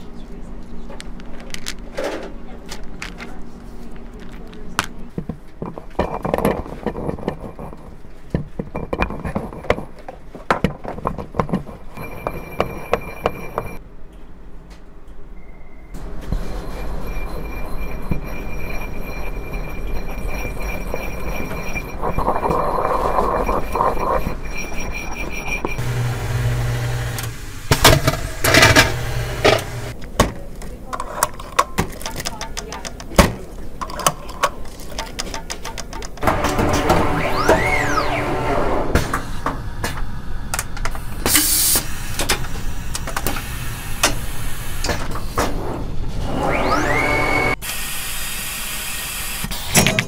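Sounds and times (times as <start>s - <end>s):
gritty grinding and scraping: 2.7s - 13.8s, 16.2s - 27.3s, 28.4s - 30.0s
loud noisy bursts: 25.8s - 29.9s
machine motor humming: 25.8s - 30.0s, 36.2s - 38.9s.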